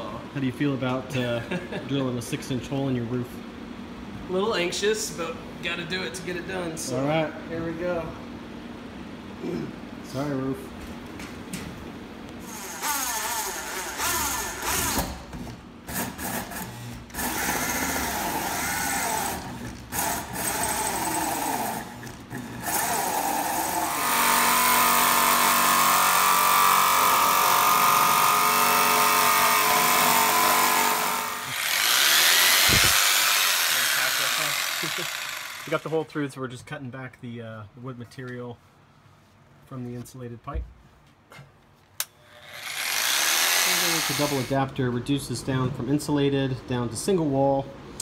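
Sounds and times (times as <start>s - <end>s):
drill hole saw cutting metal: 12.5s - 15.1s, 17.2s - 21.9s, 22.6s - 36.0s, 42.3s - 44.6s.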